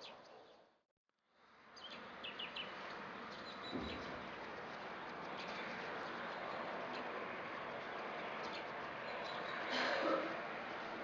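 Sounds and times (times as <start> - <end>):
songbirds chirping: 1.7 - 9.7.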